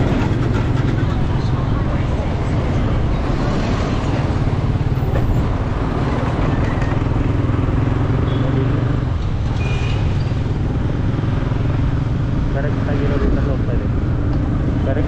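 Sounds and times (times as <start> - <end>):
motorcycle engine humming: 0.0 - 15.0
wind and road noise: 0.0 - 15.0.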